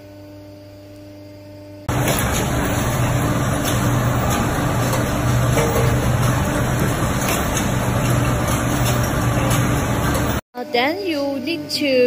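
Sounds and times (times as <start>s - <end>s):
machine hum: 1.6s - 10.4s.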